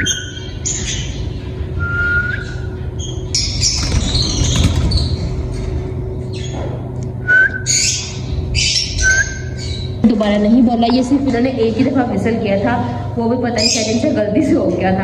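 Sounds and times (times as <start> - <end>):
birds chirping and squawking: 0.0 - 14.6
person whistling: 7.2 - 7.7.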